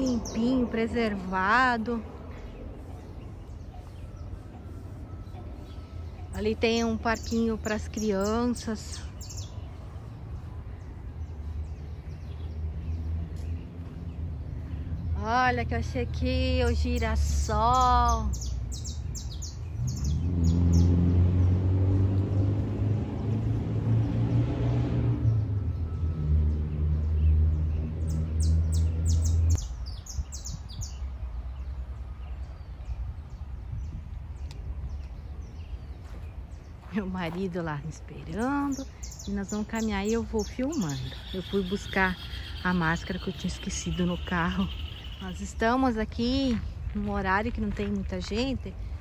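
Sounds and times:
low engine-like hum: 0:00.0 - 0:30.2
birds chirping: 0:00.0 - 0:49.0.

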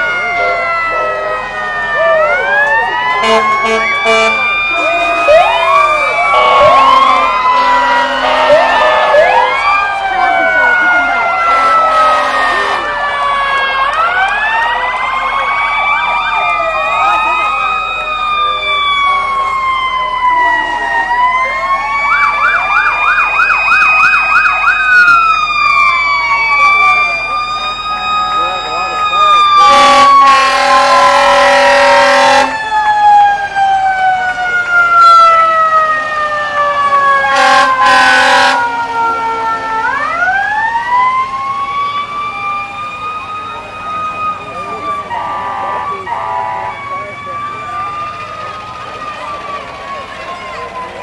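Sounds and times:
fast yelping siren: 0:00.0 - 0:51.0
wailing siren: 0:00.0 - 0:51.0
air horn blasts: 0:03.2 - 0:09.5, 0:11.4 - 0:12.9, 0:29.6 - 0:32.6, 0:37.2 - 0:38.7, 0:45.1 - 0:46.7.

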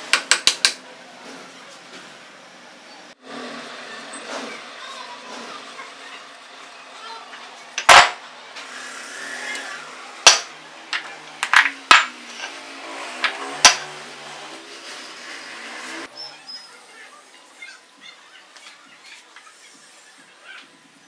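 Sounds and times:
metal housings clanking on workbench: 0:10.3 - 0:12.2.

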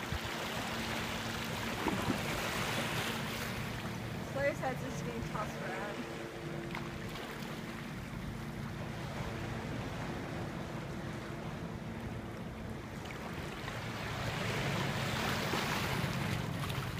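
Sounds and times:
seawater washing over rocks: 0:00.0 - 0:03.7.

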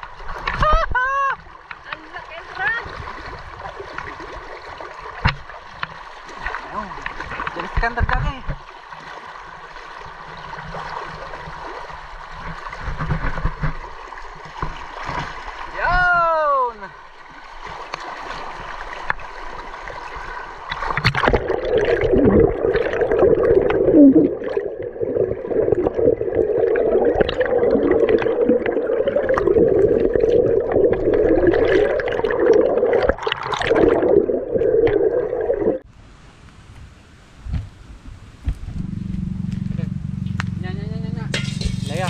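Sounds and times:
river water splashing: 0:00.0 - 0:35.8, 0:41.3 - 0:42.0
underwater current gurgling: 0:20.7 - 0:35.8.

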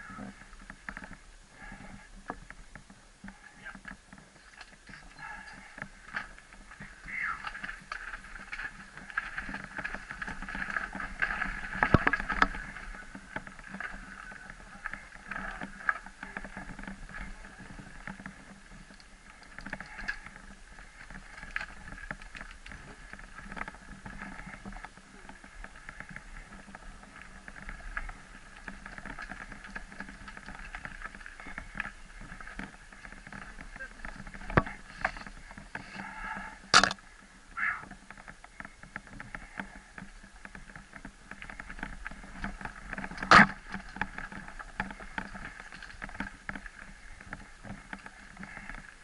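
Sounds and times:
bike clicks and rattles: 0:00.0 - 0:37.2, 0:37.8 - 0:49.0
bike tyres rolling on dirt: 0:00.0 - 0:49.0.

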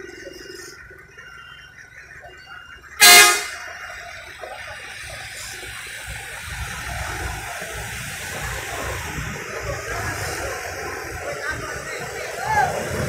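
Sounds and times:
engine rumble: 0:00.0 - 0:13.0
vehicle horn blast: 0:03.0 - 0:03.6
tyres hissing on wet road: 0:03.0 - 0:13.0.

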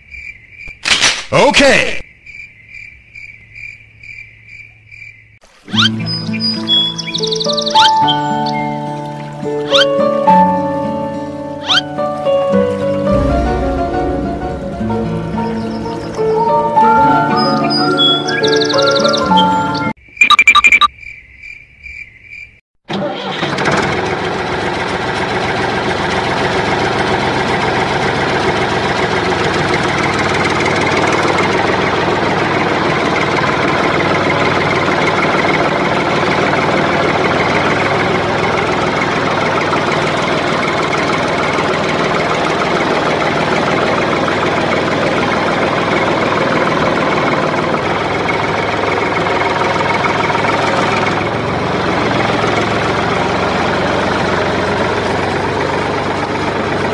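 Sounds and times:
tractor engine running: 0:05.5 - 0:20.8, 0:22.8 - 0:56.9
beeps: 0:16.8 - 0:20.9.

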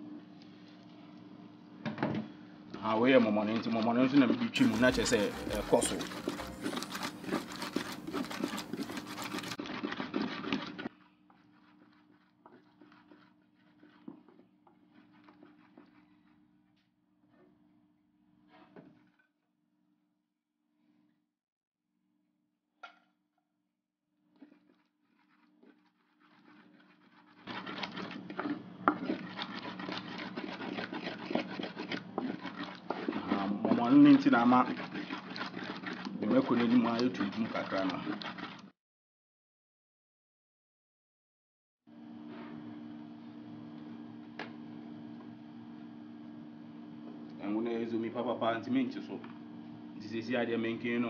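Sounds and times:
pestle grinding in bowl: 0:04.6 - 0:16.3, 0:24.4 - 0:38.7.

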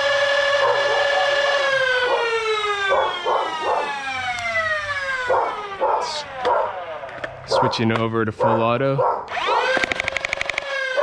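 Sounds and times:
dart blaster motors whining: 0:00.0 - 0:07.5, 0:09.3 - 0:11.0
dog barking: 0:00.6 - 0:04.0, 0:05.3 - 0:06.8, 0:07.5 - 0:09.8.

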